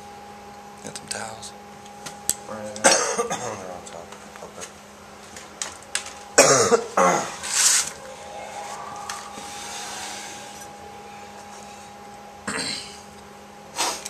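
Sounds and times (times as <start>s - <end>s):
steady hum with high tone: 0.0s - 14.0s
person coughing hard: 2.8s - 3.7s, 6.4s - 7.2s.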